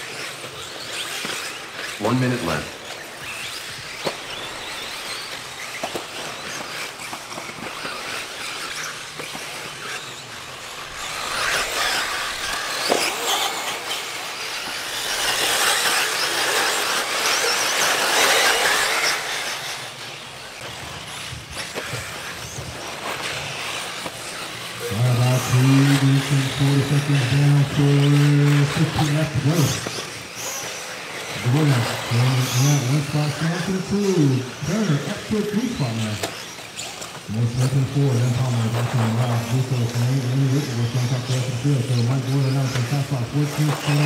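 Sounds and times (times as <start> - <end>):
rc buggy motor whine: 0.0 - 44.0
tyres on dirt: 0.2 - 44.0.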